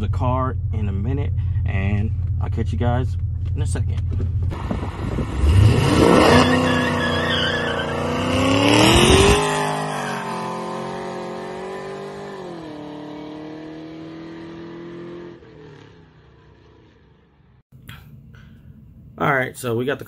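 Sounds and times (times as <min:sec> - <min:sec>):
car engine accelerating hard: 0:02.2 - 0:15.9.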